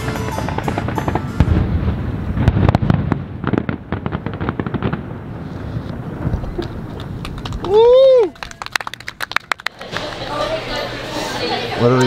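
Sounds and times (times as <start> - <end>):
fireworks booming: 0.0 - 7.8
fireworks crackling pops: 0.0 - 10.2.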